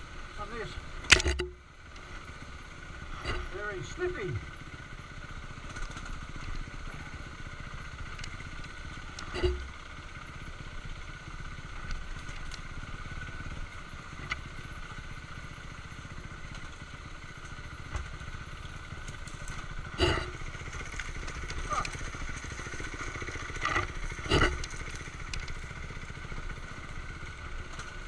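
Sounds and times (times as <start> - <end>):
motorcycle engine running: 0.0 - 28.0
knocks of bike hitting rocks: 18.9 - 25.7.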